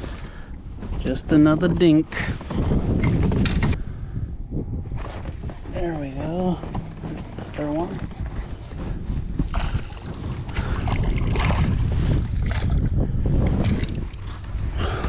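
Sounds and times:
wind buffeting microphone: 0.0s - 15.0s
water splashing: 9.5s - 12.8s.

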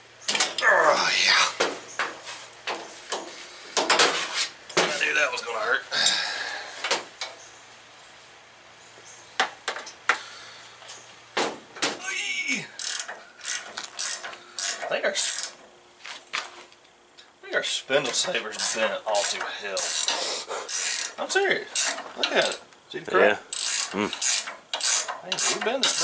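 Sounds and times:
wrenches clinking on metal: 12.8s - 15.6s, 18.1s - 22.6s, 23.5s - 26.0s.

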